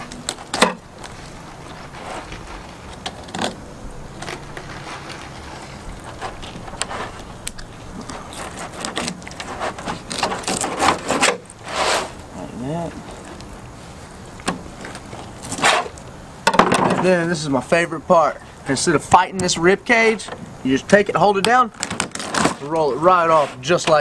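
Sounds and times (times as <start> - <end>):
knife scraping fish scales: 8.0 - 12.2.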